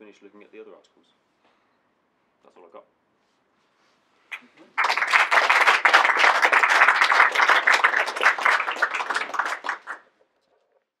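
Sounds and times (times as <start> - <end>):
small audience applauding: 4.3 - 10.2.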